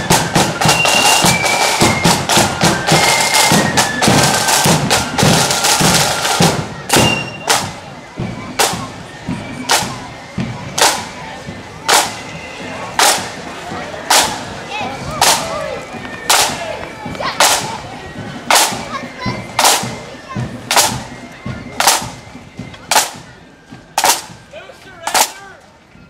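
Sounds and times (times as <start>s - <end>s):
crowd chatter: 0.0s - 26.0s.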